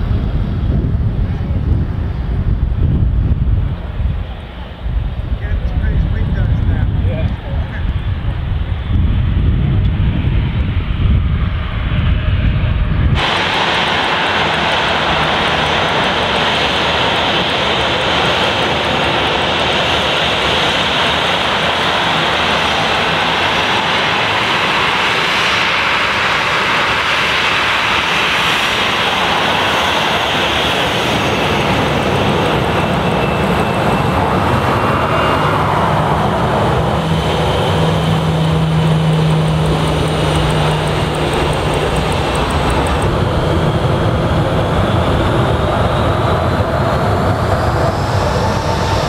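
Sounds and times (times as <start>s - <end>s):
jet engines running: 0.0s - 49.0s.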